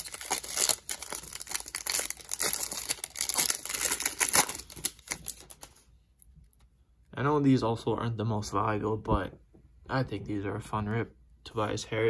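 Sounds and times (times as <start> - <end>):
foil wrapper tearing and crinkling: 0.0 - 5.8.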